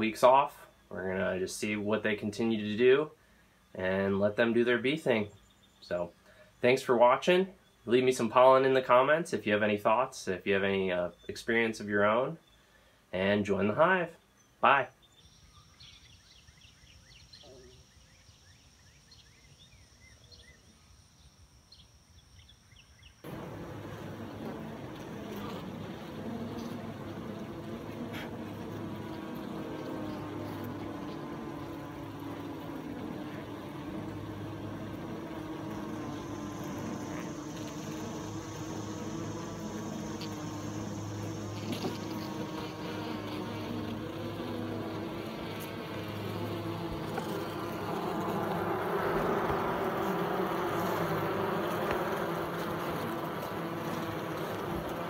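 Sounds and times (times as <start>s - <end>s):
honey bees buzzing: 23.2s - 55.0s.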